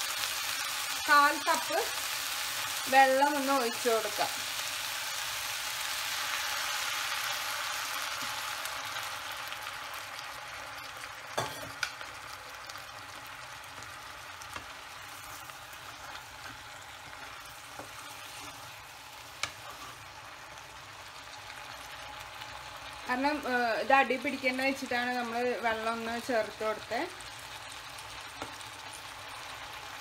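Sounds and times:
water sizzling in hot wok: 0.0 - 30.0.

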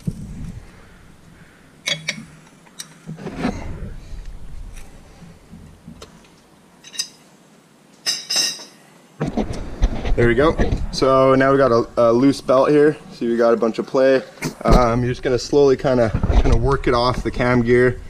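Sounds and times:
hand tools clicking on metal: 1.8 - 3.0.

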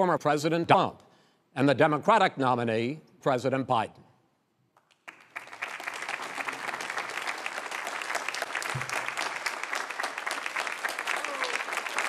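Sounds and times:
audience applauding: 4.9 - 12.0.

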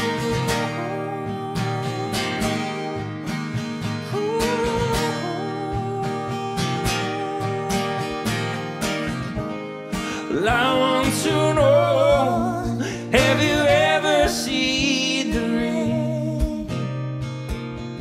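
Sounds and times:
woman singing: 0.0 - 3.1, 4.1 - 8.6, 10.3 - 16.7
acoustic guitar strumming: 0.0 - 18.0.

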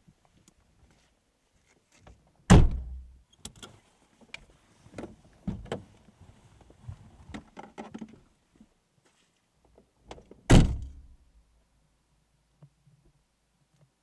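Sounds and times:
car door slamming: 2.5 - 3.0, 10.5 - 11.0.

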